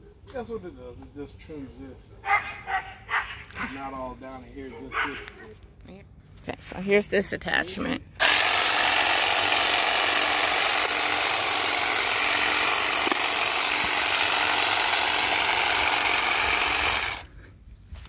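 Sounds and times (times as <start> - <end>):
grass shear buzzing: 8.2 - 17.3.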